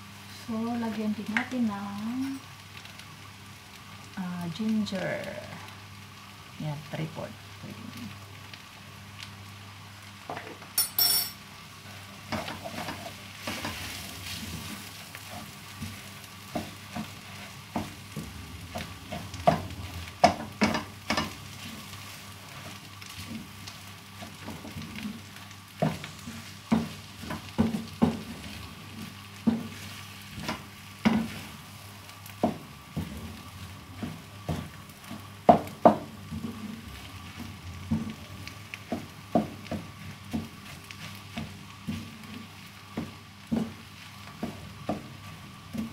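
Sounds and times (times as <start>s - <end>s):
food sizzling: 0.0s - 45.9s
spatula knocking and scraping pan: 12.3s - 21.8s, 25.8s - 31.6s, 32.3s - 45.9s.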